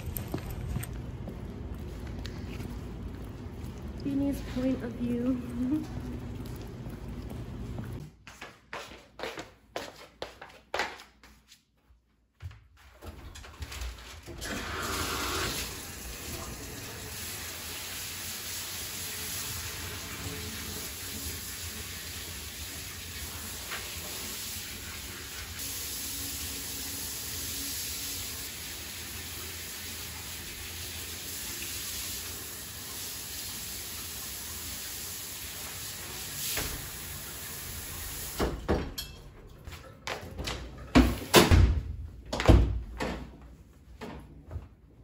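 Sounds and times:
shower head spraying water: 14.7 - 38.6.

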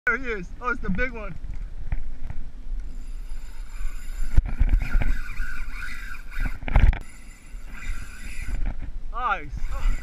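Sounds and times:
wind on microphone: 0.5 - 10.0
fishing reel whirring: 2.8 - 8.8, 9.4 - 10.0.

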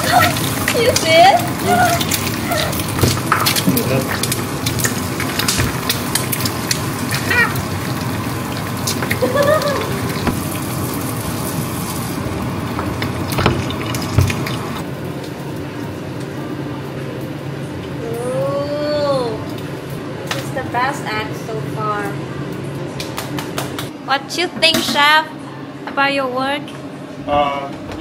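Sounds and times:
eggs sizzling in oil: 0.0 - 18.0.

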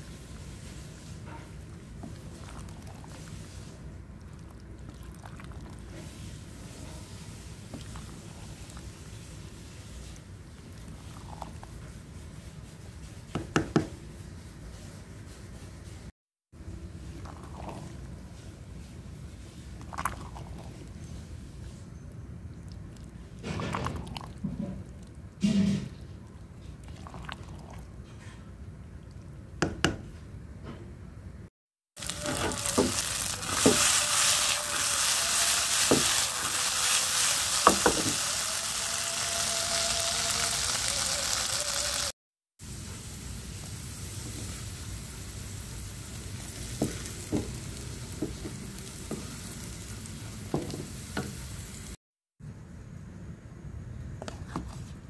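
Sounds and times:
stew sizzling in a pan: 31.9 - 52.0
spoon scraping pan: 32.0 - 38.4.

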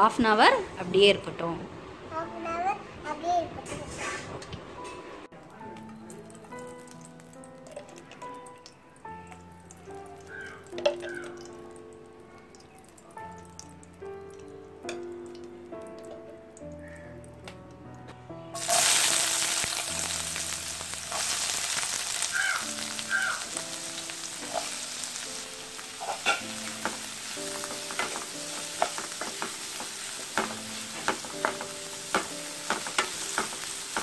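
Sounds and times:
onions sizzling in hot oil: 5.8 - 8.6, 18.6 - 34.0
spatula knocking against pan: 27.9 - 34.0.

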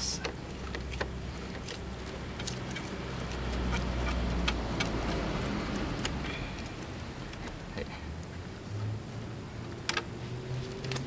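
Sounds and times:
low vehicle rumble: 0.0 - 11.0.

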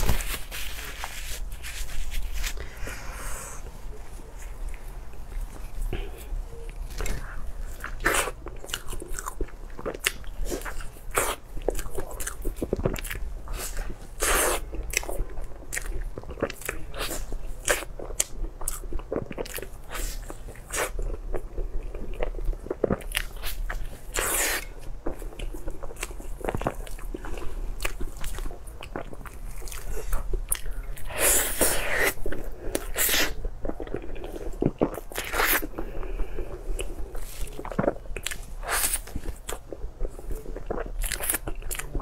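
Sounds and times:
crunchy chewing: 0.0 - 42.0
steady low hum: 0.0 - 42.0.

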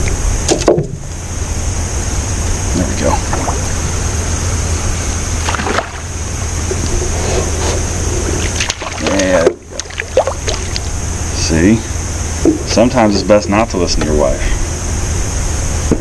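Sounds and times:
steady low hum: 0.0 - 16.0
fish splashing in water: 5.4 - 6.2, 8.4 - 11.0.

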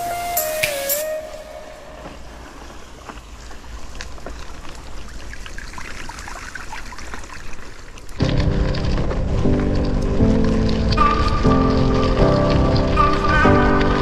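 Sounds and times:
loud music: 0.0 - 1.7
bike tyres rolling on dirt: 0.0 - 14.0
tyres splashing through puddles: 0.0 - 14.0
grit ticking: 8.2 - 14.0.

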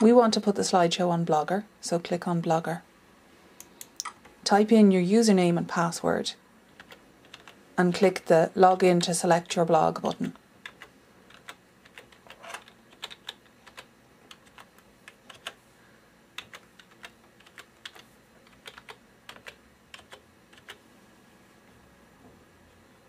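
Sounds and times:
keyboard typing: 6.7 - 8.1, 10.0 - 15.6, 16.4 - 20.8.

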